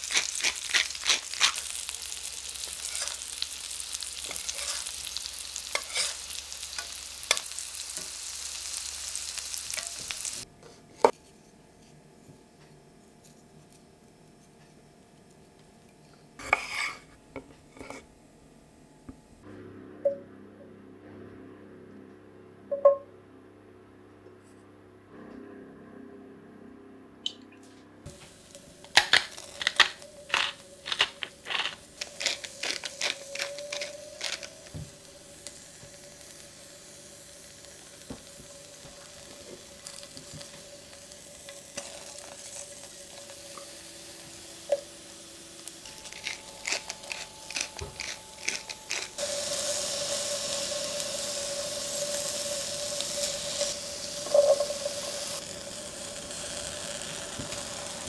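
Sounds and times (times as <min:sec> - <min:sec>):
hot oil sizzling: 0:00.0 - 0:10.5, 0:28.1 - 0:58.0
vegetables clicking on metal pan: 0:28.9 - 0:34.5.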